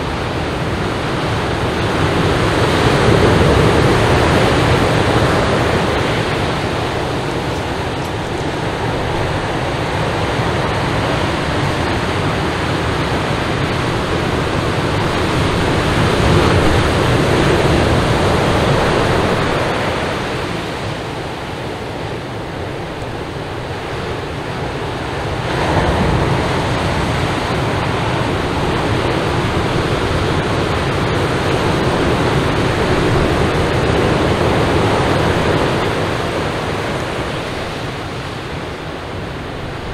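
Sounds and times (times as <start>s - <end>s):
ocean surf breaking on beach: 0.0s - 39.9s.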